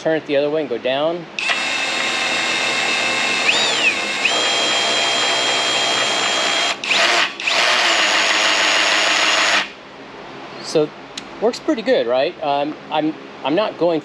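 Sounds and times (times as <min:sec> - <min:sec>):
power drill whining: 0:01.4 - 0:09.8.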